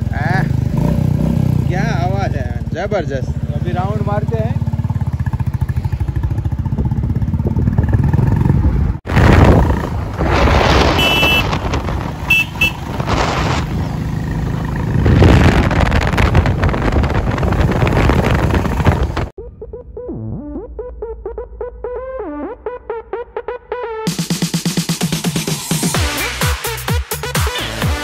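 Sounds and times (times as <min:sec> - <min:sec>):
wind rush on microphone: 0:06.6 - 0:19.3.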